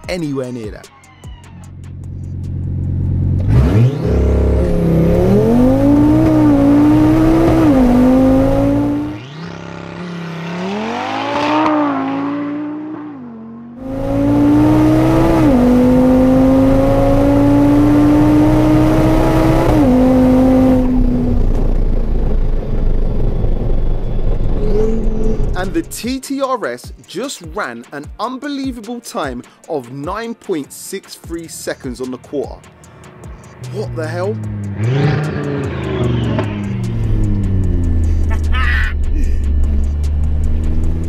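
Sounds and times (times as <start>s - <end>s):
car engine accelerating: 1.8s - 26.0s, 32.6s - 41.0s
wind and tyre noise: 3.0s - 25.8s.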